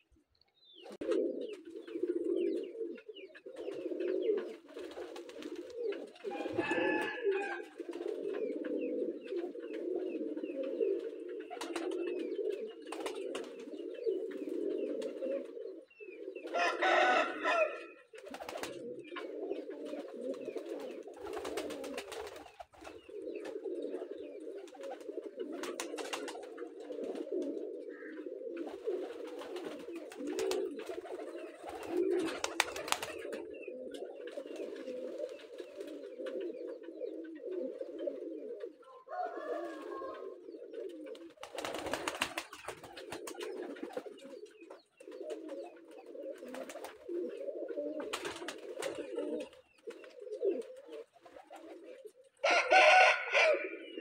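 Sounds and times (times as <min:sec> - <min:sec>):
pigeons cooing: 0:00.0 - 0:54.0.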